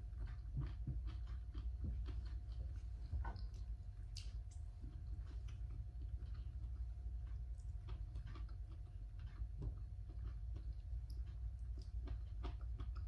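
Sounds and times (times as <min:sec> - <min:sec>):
faint steady hum: 0:00.0 - 0:13.0
person chewing: 0:00.0 - 0:13.0.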